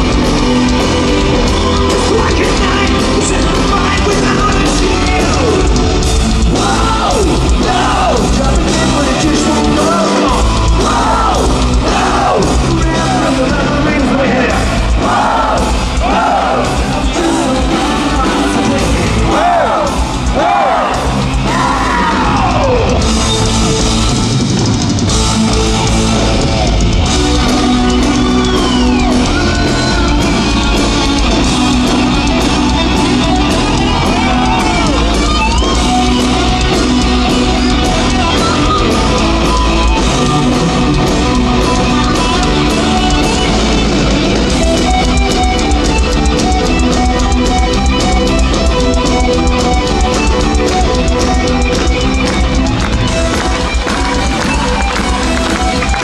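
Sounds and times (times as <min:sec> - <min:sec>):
live hard rock band: 0:00.0 - 0:56.0.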